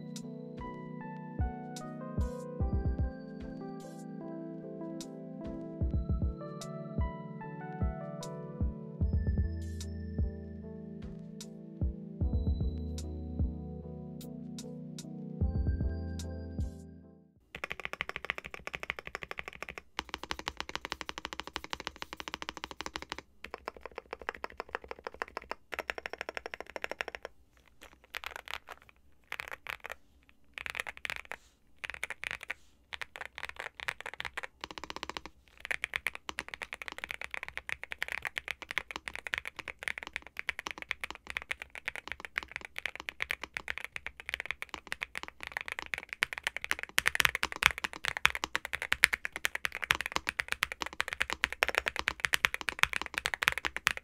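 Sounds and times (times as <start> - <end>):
mechanical keyboard typing: 17.5 - 54.0.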